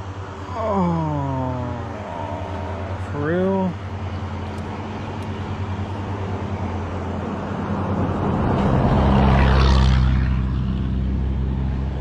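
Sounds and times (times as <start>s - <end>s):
car engine hum: 0.0s - 12.0s.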